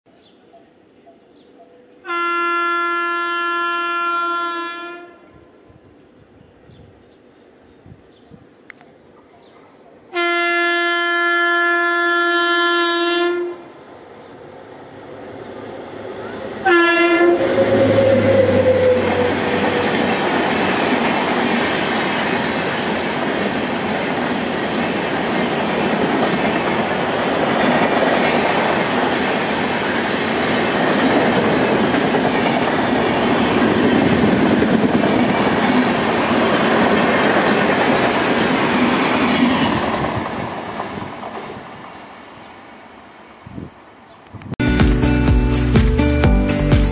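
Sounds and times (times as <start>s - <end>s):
locomotive horn blasts: 2.0s - 5.3s, 10.2s - 13.7s, 16.6s - 19.5s
train coaches rushing past: 12.4s - 43.0s.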